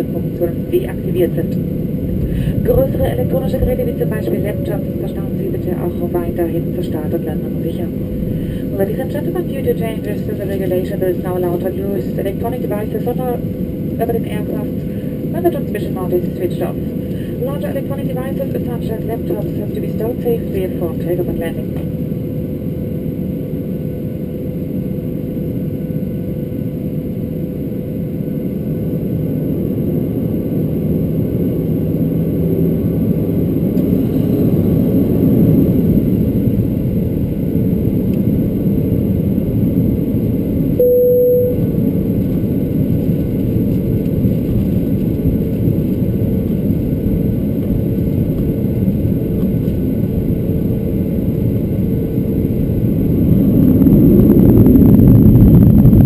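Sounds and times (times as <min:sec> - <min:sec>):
jet engines rumbling: 0:00.0 - 0:40.8, 0:41.6 - 0:56.0
brief single tone: 0:40.8 - 0:41.8.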